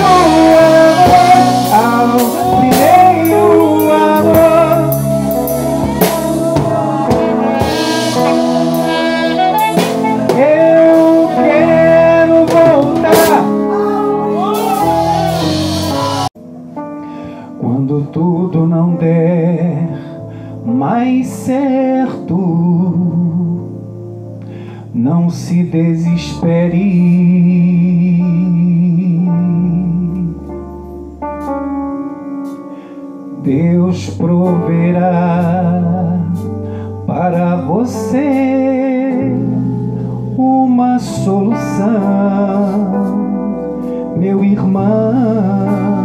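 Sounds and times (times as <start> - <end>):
band with drums: 0.0 - 13.7, 14.3 - 16.3
man singing with vibrato: 0.0 - 16.4, 17.6 - 23.8, 24.9 - 30.4, 33.4 - 36.4, 37.0 - 39.7, 40.3 - 46.0.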